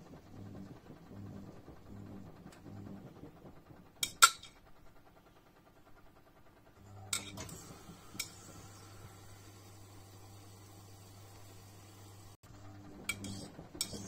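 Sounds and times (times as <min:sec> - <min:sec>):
washing machine motor hum: 0:00.0 - 0:14.0.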